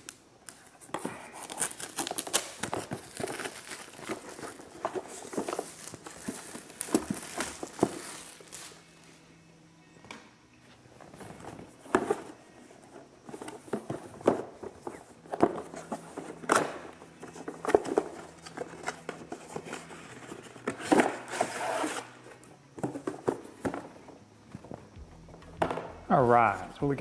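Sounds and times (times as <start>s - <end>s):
cardboard box scraping and rustling: 17.6s - 22.1s.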